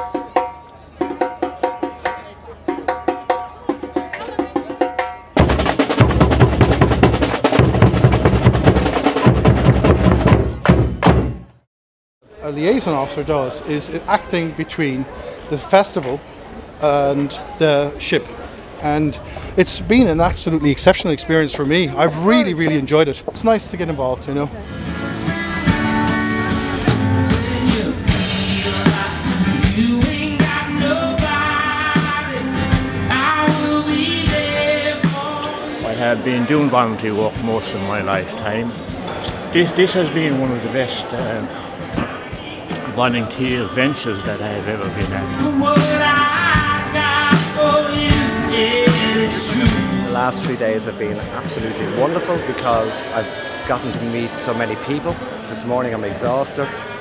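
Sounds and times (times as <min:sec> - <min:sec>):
full band with drums: 0:00.0 - 0:11.6, 0:18.7 - 0:57.0
man singing: 0:26.9 - 0:36.2, 0:42.0 - 0:51.3
strummed acoustic guitar: 0:44.5 - 0:52.6.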